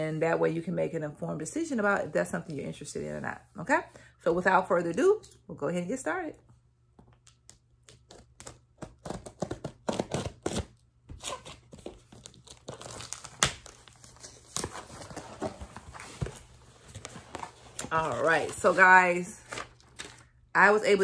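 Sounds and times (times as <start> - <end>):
bag and paper rustling: 14.8 - 20.2.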